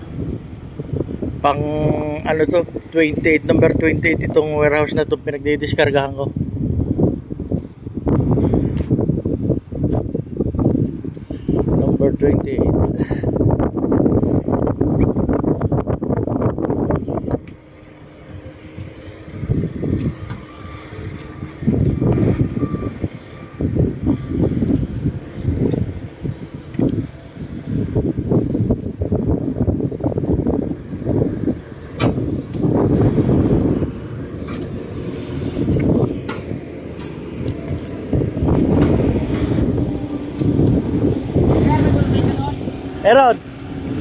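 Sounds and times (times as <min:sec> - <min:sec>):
rough rumbling: 0:12.6 - 0:44.0
engine humming: 0:13.1 - 0:44.0
reversing alarm beeping: 0:20.2 - 0:24.6.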